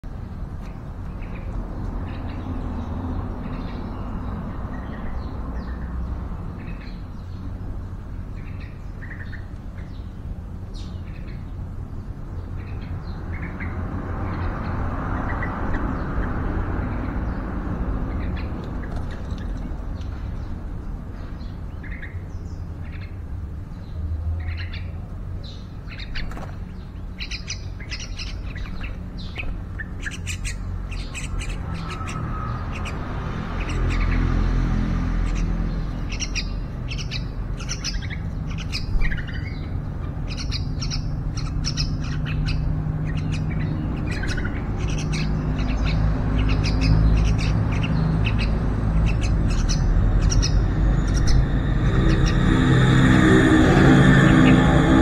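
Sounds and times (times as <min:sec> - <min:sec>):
birds chirping and squawking: 0:00.0 - 0:55.0
low rumble: 0:48.1 - 0:55.0.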